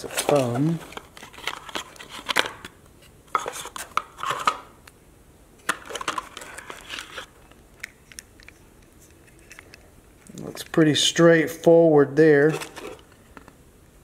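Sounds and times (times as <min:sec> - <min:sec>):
cardboard box rustling: 0:00.0 - 0:02.4.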